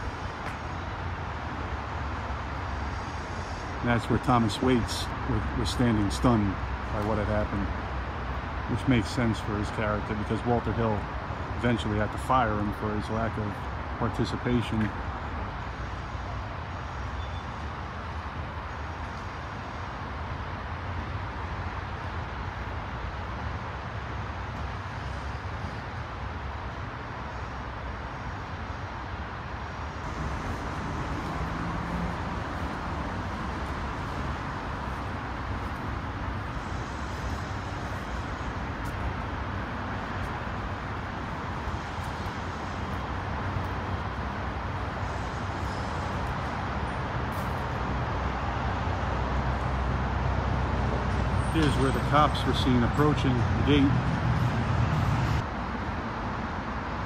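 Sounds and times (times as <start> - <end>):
distant traffic hum: 0.0 - 57.0.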